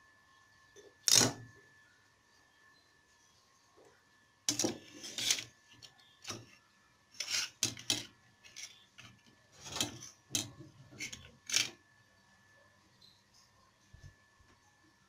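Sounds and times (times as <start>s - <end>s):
knives scraping on stone: 4.7s - 5.5s, 7.2s - 8.8s.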